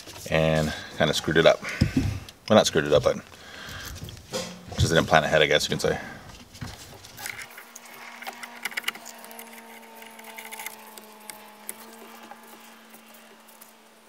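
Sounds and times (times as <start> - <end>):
faint steady hum: 0.0 - 14.0
clicks of handling cable and plastic: 6.3 - 13.8.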